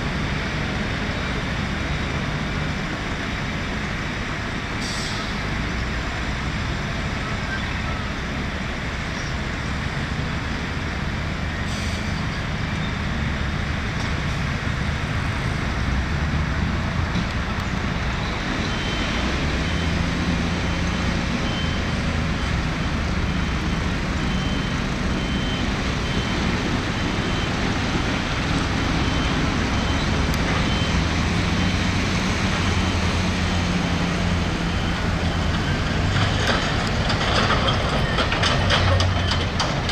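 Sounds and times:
diesel machinery running: 0:00.0 - 0:39.9
reversing alarm beeping: 0:18.2 - 0:39.9.

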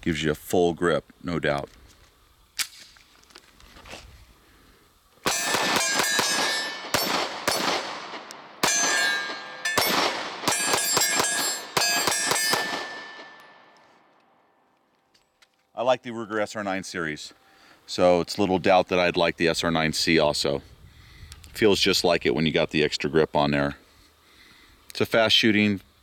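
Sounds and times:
pistol shots: 0:05.2 - 0:13.8.

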